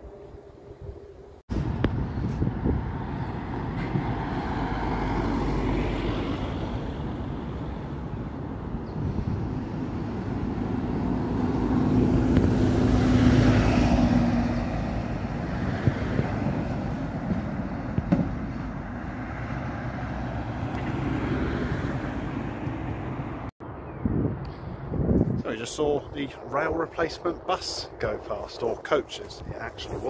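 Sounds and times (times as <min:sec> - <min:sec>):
road noise: 0:00.0 - 0:30.0
car passing: 0:01.5 - 0:23.5.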